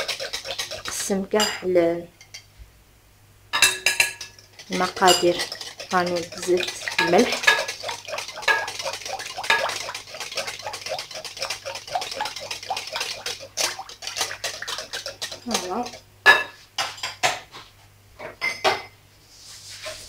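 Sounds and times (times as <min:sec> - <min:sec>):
whisk clicking against glass bowl: 0:00.0 - 0:01.6, 0:03.6 - 0:16.0.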